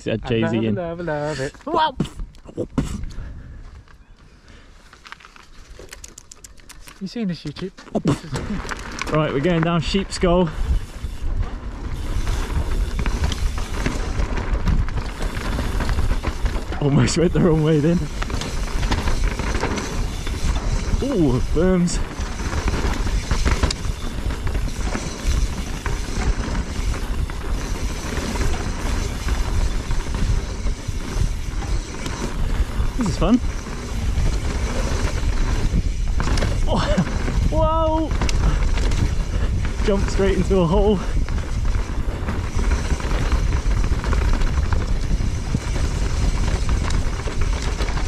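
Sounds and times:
bike rattling over bumps: 0:04.5 - 0:48.0
tyres rumbling on dirt: 0:07.9 - 0:48.0
wind on microphone: 0:10.0 - 0:48.0.

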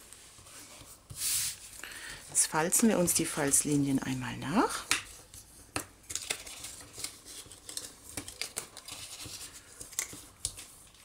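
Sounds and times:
paper scraping and rustling: 0:02.4 - 0:11.0.

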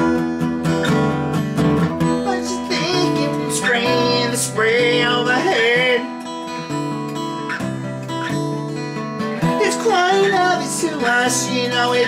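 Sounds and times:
person singing: 0:00.0 - 0:01.1, 0:02.0 - 0:06.3, 0:09.4 - 0:12.0
strummed acoustic guitar: 0:00.0 - 0:12.0.

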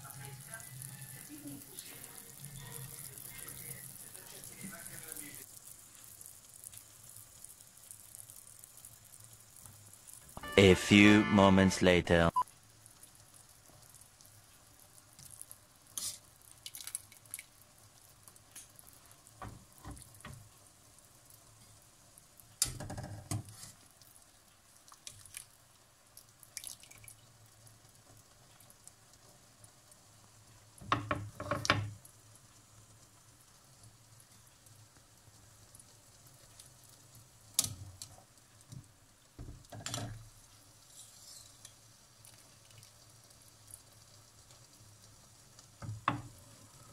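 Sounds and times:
broth dripping and splashing: 0:12.8 - 0:20.4, 0:23.8 - 0:30.0, 0:41.5 - 0:46.1.

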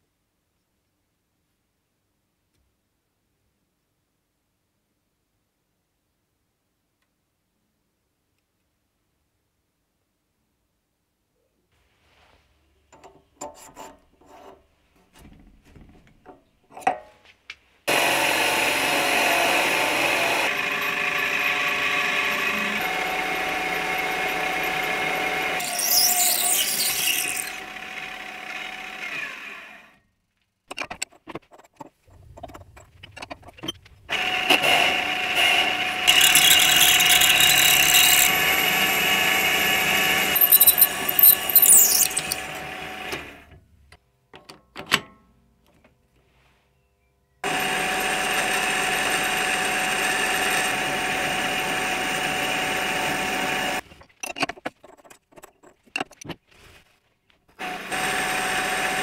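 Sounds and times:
drill squealing in metal: 0:25.6 - 0:27.6, 0:36.1 - 0:42.5
lathe motor running: 0:36.0 - 0:42.4
drill chuck clicks: 0:36.1 - 0:38.8.

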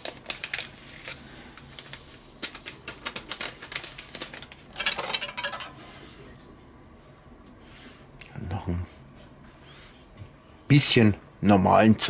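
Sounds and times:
paper sachet crinkling and tapping: 0:00.0 - 0:05.5.

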